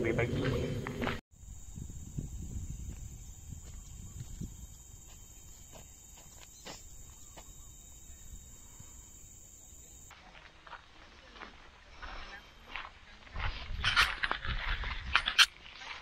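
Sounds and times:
high-pitched insect drone: 1.4s - 10.1s.

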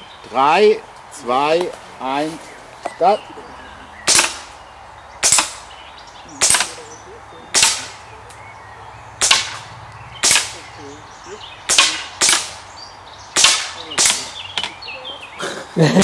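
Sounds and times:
gunshots with echo: 4.0s - 4.6s, 5.2s - 5.7s, 6.4s - 8.1s, 9.2s - 10.8s, 11.7s - 12.6s, 13.4s - 14.4s.

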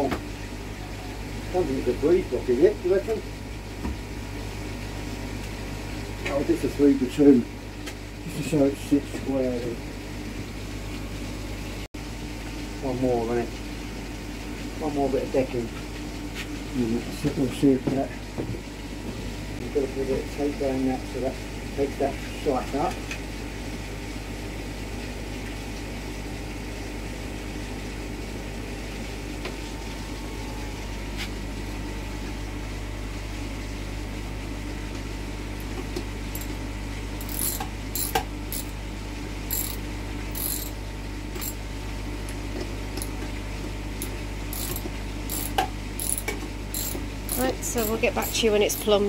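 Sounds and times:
steady low hum: 27.1s - 49.0s
ratchet clicking: 37.2s - 38.7s, 39.5s - 39.8s, 40.4s - 40.8s, 41.4s - 41.6s, 44.0s - 48.4s.

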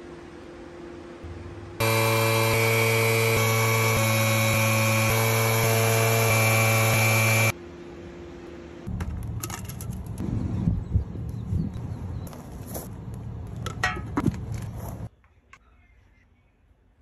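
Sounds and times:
air tool humming and whining: 1.8s - 7.6s.

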